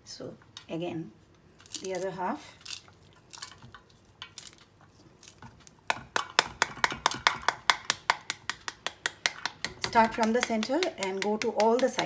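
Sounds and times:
spoon tapping pomegranate: 5.8s - 12.0s.

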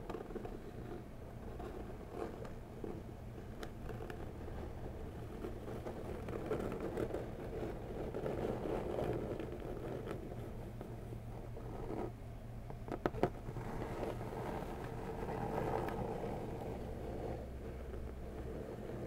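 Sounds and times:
fingers scratching cardboard box: 0.0s - 12.2s, 12.8s - 19.0s.

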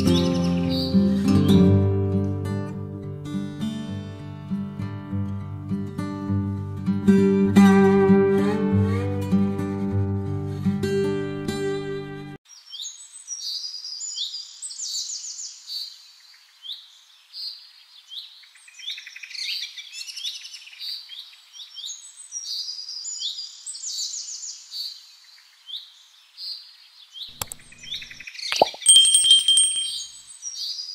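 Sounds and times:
songbirds chirping: 12.5s - 30.9s.

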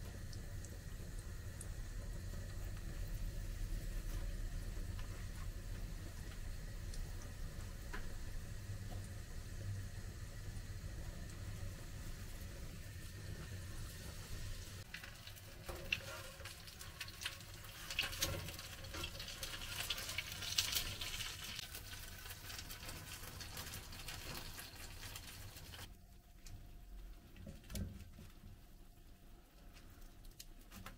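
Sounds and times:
food sizzling in hot oil: 0.0s - 25.9s
oil crackling and popping: 12.8s - 26.5s.

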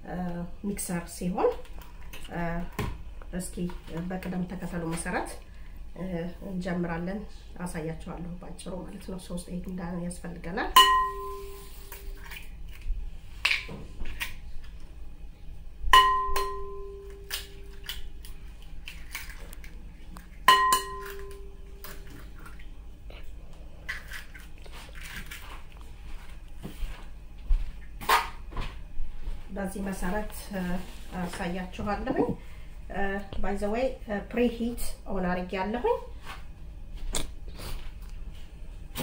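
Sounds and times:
bowl ringing: 10.7s - 12.1s, 15.9s - 17.9s, 20.4s - 22.1s.

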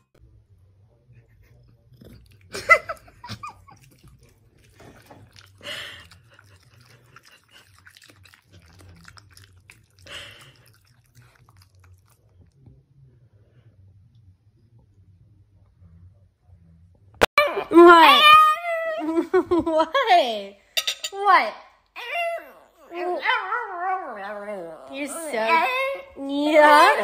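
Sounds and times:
dog chewing: 1.9s - 12.6s.

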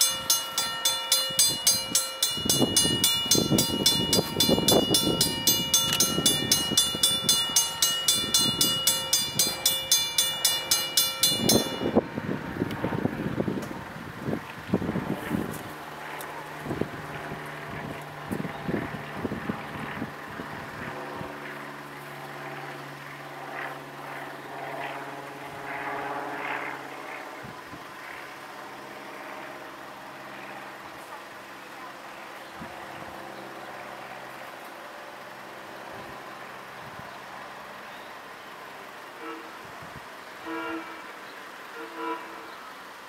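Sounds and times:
railroad crossing bell ringing: 0.0s - 13.6s, 39.2s - 39.7s, 40.4s - 42.7s.

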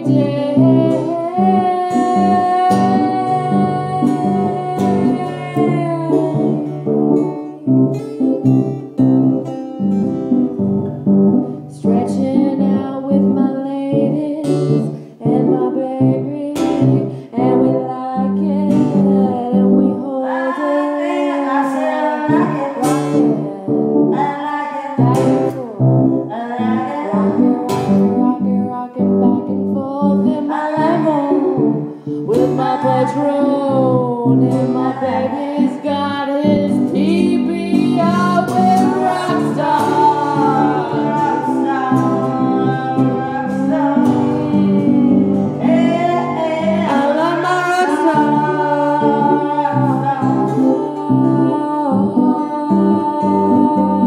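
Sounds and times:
guitar playing: 0.0s - 54.0s
person singing: 0.0s - 54.0s.

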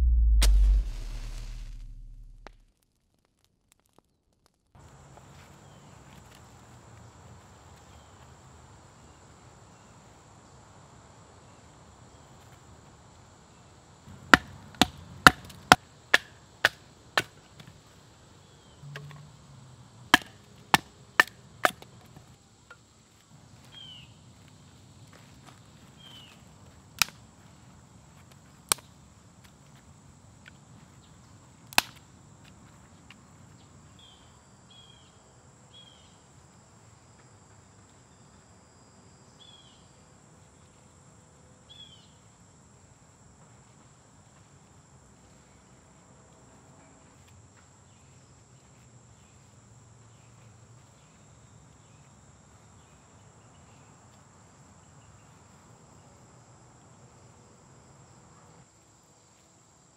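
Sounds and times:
sharp loud cracks: 0.0s - 2.7s
insects droning: 4.8s - 59.9s.

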